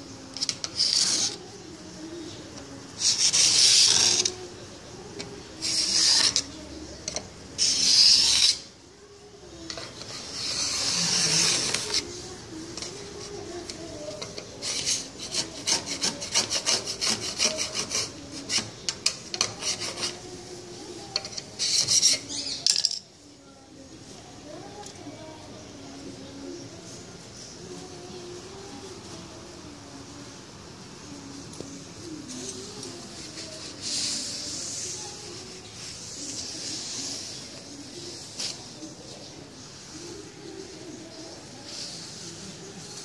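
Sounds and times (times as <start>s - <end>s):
hissing rasps: 0.0s - 8.8s, 9.4s - 20.3s.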